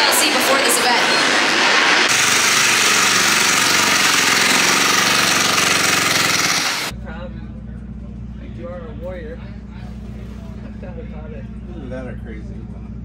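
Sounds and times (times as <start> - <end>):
stadium crowd noise: 0.0 - 2.2
dirt bike engines running: 0.0 - 6.9
race bike engine pulsing: 0.0 - 6.9.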